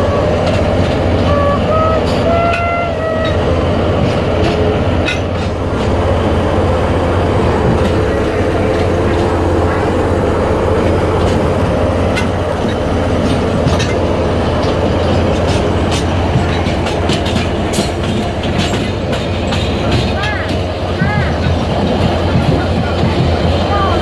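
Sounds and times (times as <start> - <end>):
train rumbling: 0.0 - 24.0
wheels clicking over rail joints: 0.0 - 24.0.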